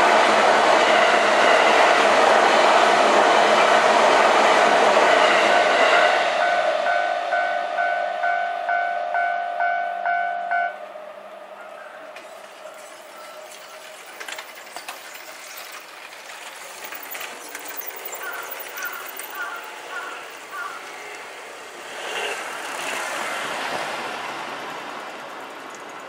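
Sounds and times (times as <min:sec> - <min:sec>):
commuter train passing: 0:00.0 - 0:26.0
level crossing bell ringing: 0:06.9 - 0:10.8.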